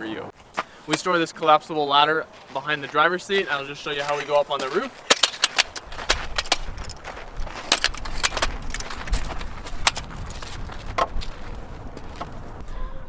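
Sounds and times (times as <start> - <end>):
low rumble: 6.6 - 13.0.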